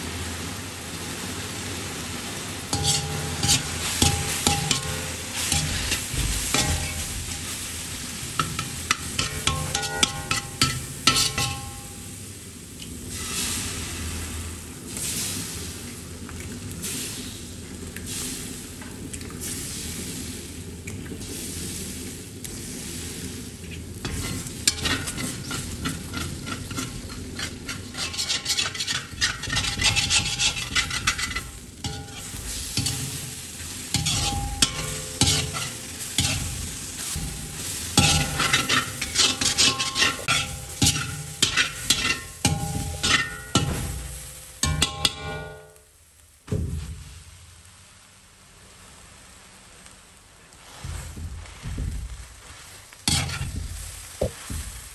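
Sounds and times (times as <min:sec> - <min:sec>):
eggs sizzling in hot oil: 0:00.0 - 0:54.9
metal spoon scraping a pan: 0:02.7 - 0:12.2, 0:24.0 - 0:45.8, 0:53.1 - 0:54.4.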